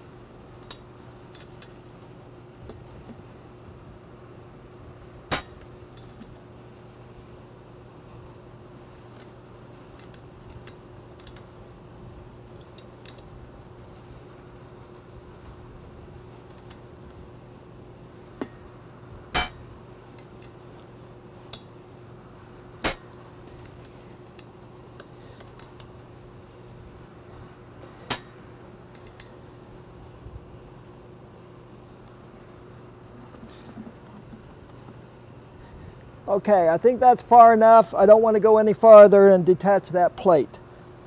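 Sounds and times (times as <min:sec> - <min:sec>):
steady low hum: 0:00.0 - 0:41.0
allen wrench clinking on metal: 0:09.2 - 0:11.5, 0:22.8 - 0:26.0.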